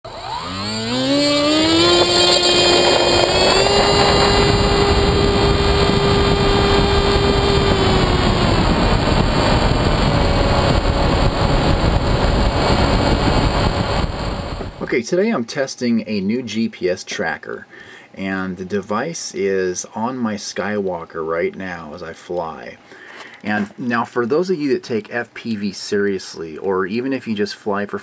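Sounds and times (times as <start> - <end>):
electric motor high whine: 0.0 - 14.9
wind rush on microphone: 1.2 - 14.9.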